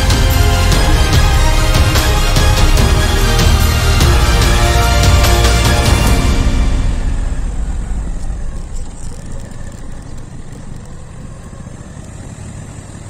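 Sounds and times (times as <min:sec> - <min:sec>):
road noise: 0:00.0 - 0:13.0
motorcycle engine running: 0:05.0 - 0:13.0.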